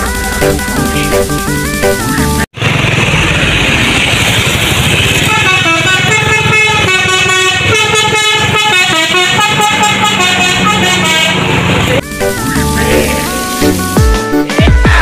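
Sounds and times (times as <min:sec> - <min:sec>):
traffic noise: 0:02.6 - 0:14.0
multi-tone bus horn melody: 0:05.0 - 0:14.0.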